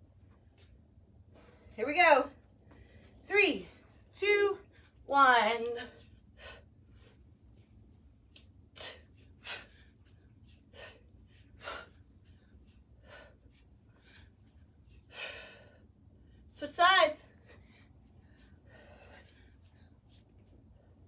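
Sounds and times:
woman breathing sharply: 2.6 - 3.2, 8.8 - 16.5, 17.3 - 21.0.

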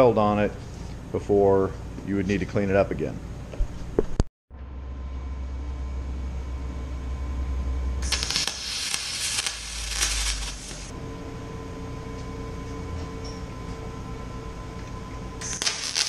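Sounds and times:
low hum: 4.5 - 16.0
welding arc crackling hiss: 8.0 - 11.0, 15.4 - 16.0.

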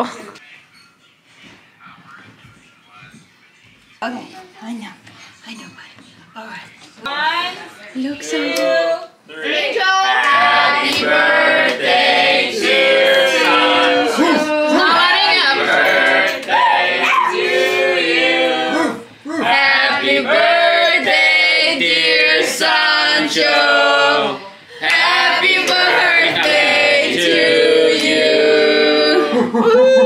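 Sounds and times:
people singing a celebration song: 8.2 - 29.6.

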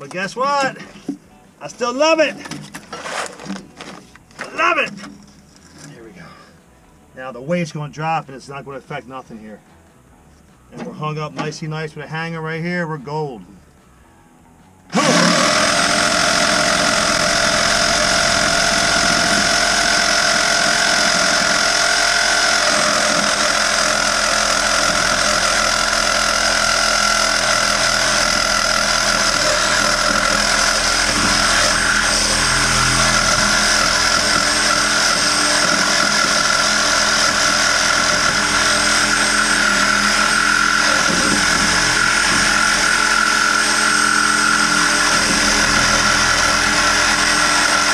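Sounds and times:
power tool cutting pipe: 14.9 - 47.9.

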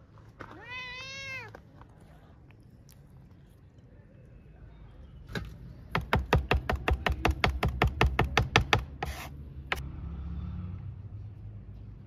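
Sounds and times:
knife chopping on wooden board: 5.9 - 9.8.

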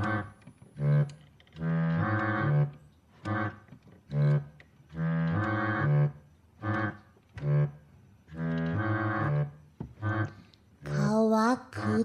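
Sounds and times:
organ playing held chords: 5.0 - 7.8, 8.4 - 11.1.

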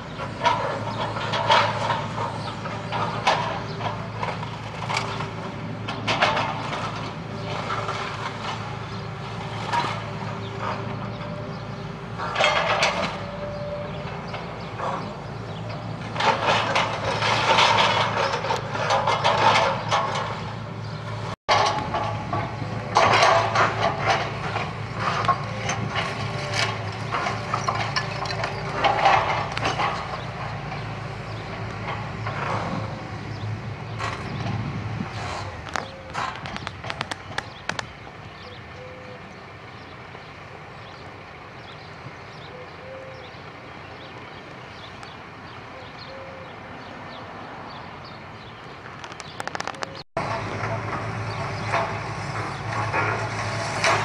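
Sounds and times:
excavator diesel engine running: 0.0 - 54.0
timber and rubble crunching: 15.7 - 20.6, 21.5 - 33.1.

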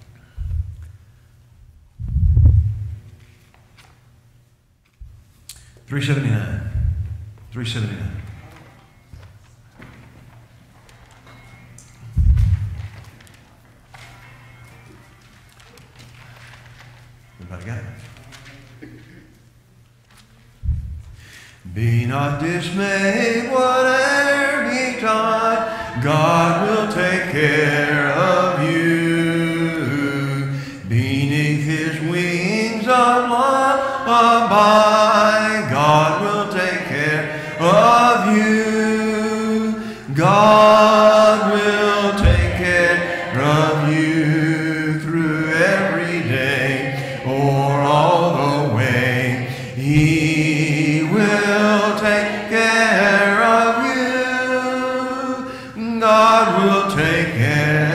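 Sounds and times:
voices singing a hymn: 21.6 - 57.9.

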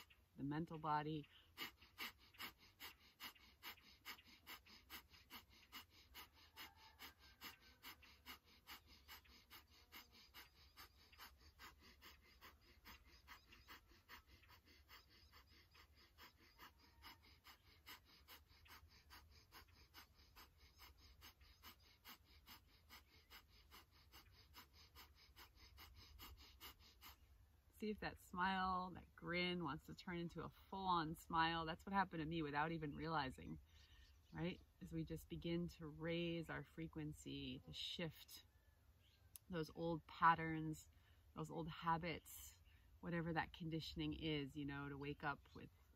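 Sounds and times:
fast rhythmic breathing: 1.3 - 27.4.

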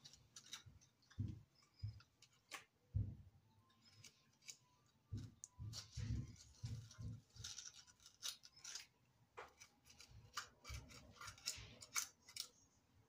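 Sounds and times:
knife rasping tomato: 5.6 - 12.7.

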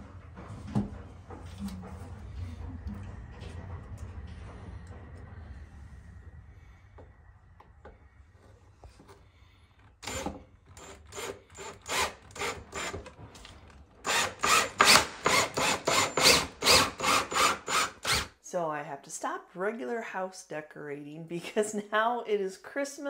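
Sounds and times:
drill driving screw into wood: 10.0 - 13.1, 14.0 - 18.3.

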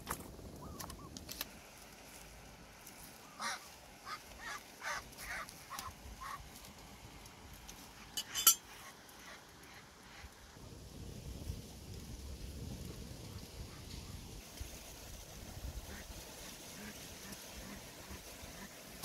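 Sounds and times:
duck quacking: 3.3 - 6.4.

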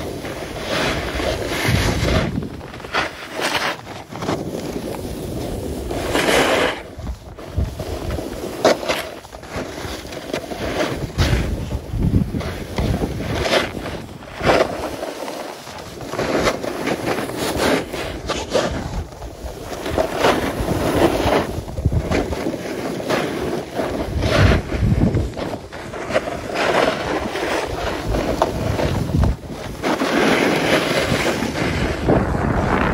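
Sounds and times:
wind buffeting microphone: 0.0 - 3.0, 10.9 - 14.5, 18.0 - 22.4, 23.9 - 32.9
skis scraping on packed snow: 0.0 - 32.9.

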